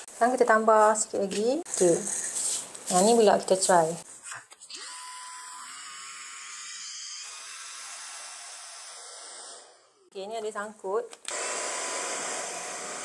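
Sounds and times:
stick vacuum whining: 11.3 - 13.0.

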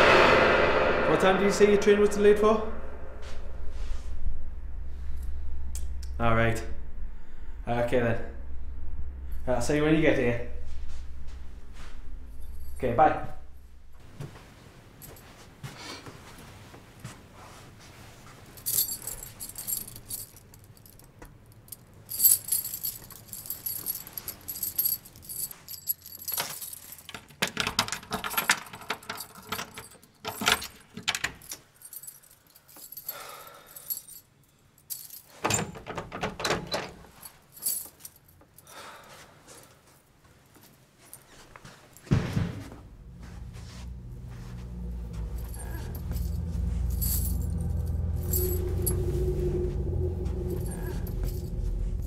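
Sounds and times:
keys jangling: 18.6 - 38.7, 43.0 - 52.0
keys clicking in door lock: 24.5 - 31.8, 35.0 - 37.1.

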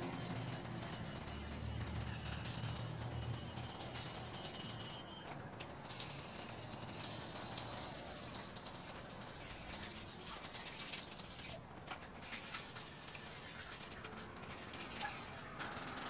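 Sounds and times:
sandpaper rasping on metal: 5.8 - 11.6, 12.2 - 16.0.

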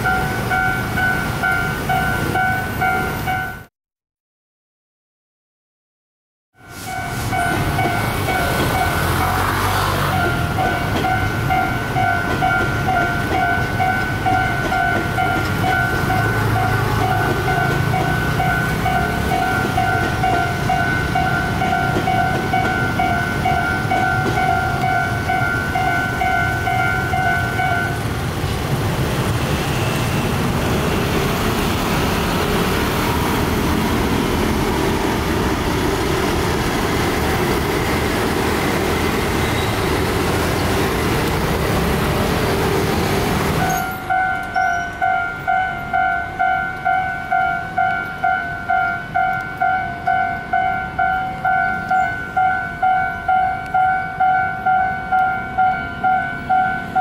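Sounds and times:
passenger train passing: 0.0 - 3.7, 6.6 - 57.0
scooter and car engines: 7.1 - 54.2
level crossing bell ringing: 10.1 - 28.1, 43.6 - 57.0.

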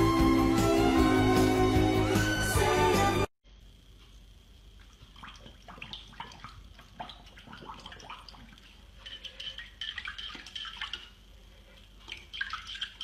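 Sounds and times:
water splashing in a bowl: 4.8 - 11.2, 12.0 - 13.0.

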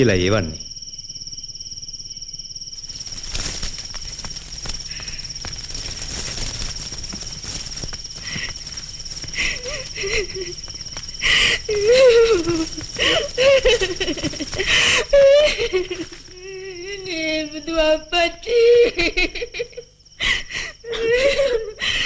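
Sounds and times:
crickets chirring: 0.0 - 22.0
woman wailing and sobbing: 9.4 - 10.6, 11.2 - 22.0.

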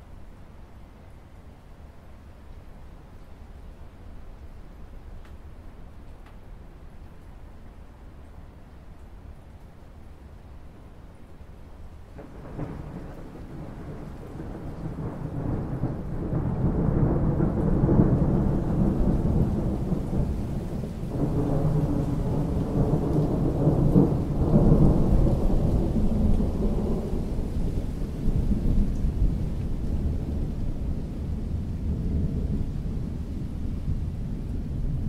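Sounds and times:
rain falling on water: 0.0 - 35.0
rolling thunder rumble: 12.1 - 35.0.

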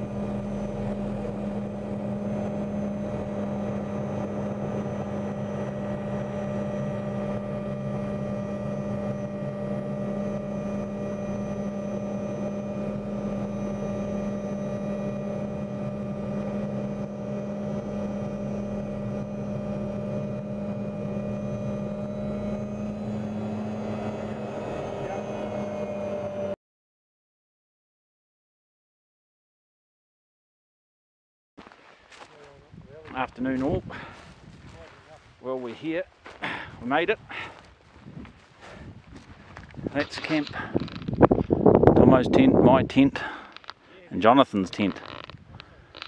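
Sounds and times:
helicopter engine and rotor drone: 0.0 - 26.6, 39.5 - 46.0.

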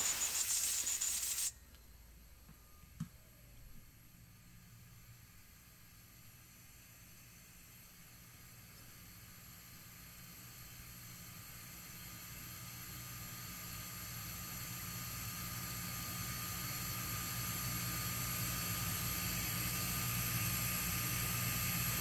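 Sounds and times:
machine shop hum and hiss: 0.0 - 1.6, 5.0 - 22.0.

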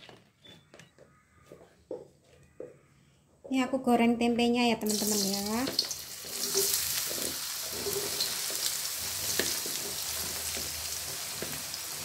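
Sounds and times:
food sizzling in hot oil: 4.9 - 12.0
oil crackles and pops: 4.9 - 12.0.

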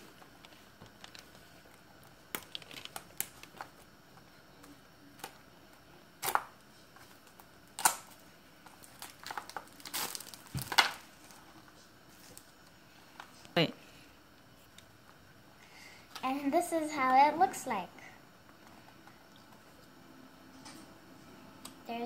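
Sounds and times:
plastic wrap tearing and crinkling: 2.3 - 3.8, 6.2 - 6.5, 7.2 - 11.4.

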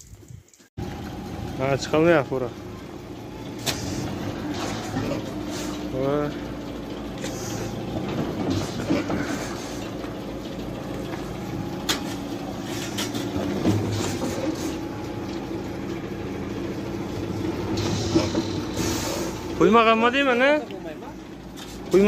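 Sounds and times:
truck diesel engine running: 0.8 - 22.0
wheel churning in snow: 0.8 - 22.0.

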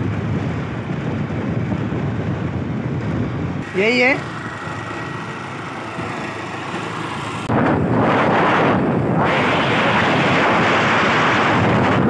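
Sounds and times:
motorbike engine running: 0.0 - 9.7
road noise: 0.0 - 12.0
wind buffeting microphone: 0.0 - 12.0.

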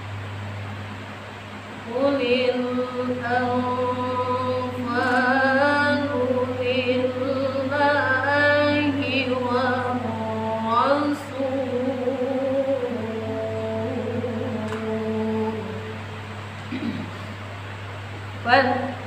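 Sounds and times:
woman chanting melodic recitation: 1.8 - 16.2, 18.4 - 19.0.

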